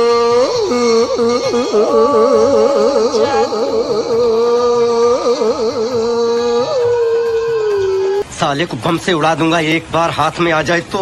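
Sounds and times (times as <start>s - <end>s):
man singing into microphone: 0.0s - 8.2s.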